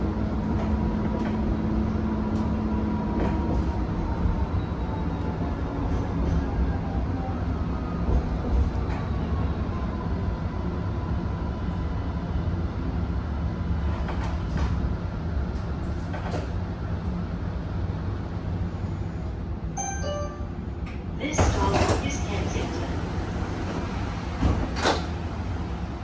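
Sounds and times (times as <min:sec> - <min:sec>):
tram wheels rumbling on rails: 0:00.0 - 0:26.0
short pitched tone: 0:19.8 - 0:20.7.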